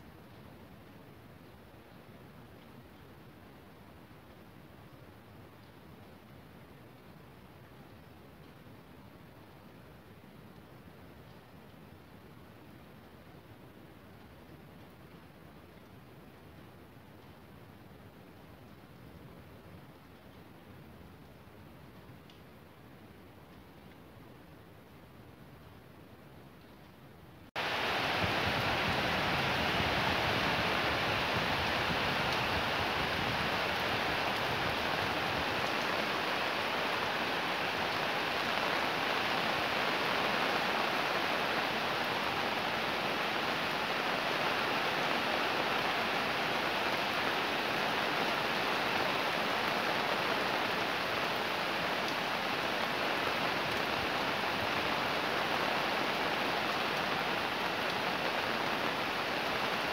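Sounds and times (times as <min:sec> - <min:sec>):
heavy rain falling: 0:27.5 - 0:59.9.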